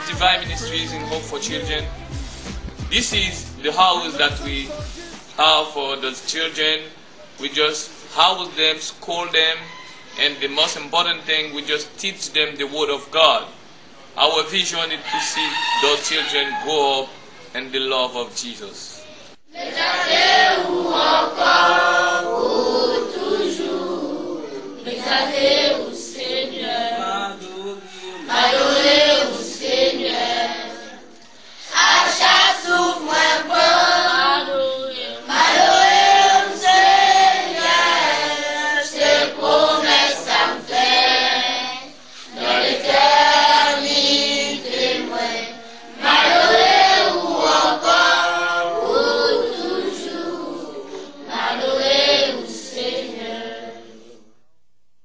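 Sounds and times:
choir singing: 0.0 - 2.2, 19.6 - 54.3.

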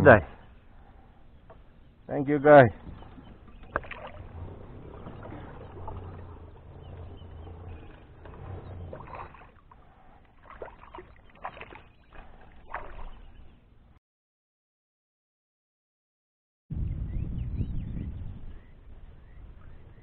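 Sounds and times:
water lapping against kayak hull: 0.3 - 13.7.

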